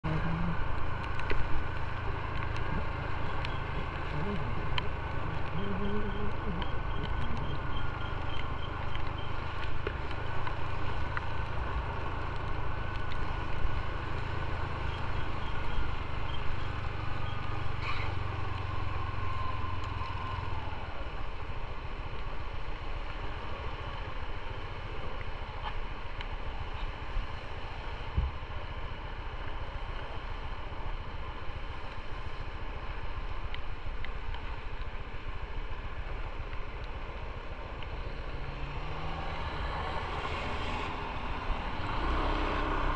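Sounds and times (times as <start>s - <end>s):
motorcycle engine running: 0.0s - 10.8s
tyres on wet road: 0.0s - 42.9s.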